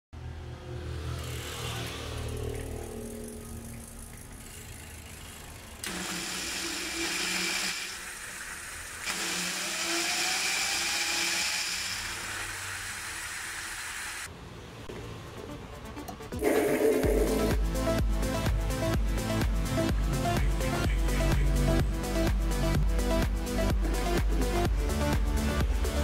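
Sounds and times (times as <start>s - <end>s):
electric motors whirring with whine: 1.2s - 14.3s.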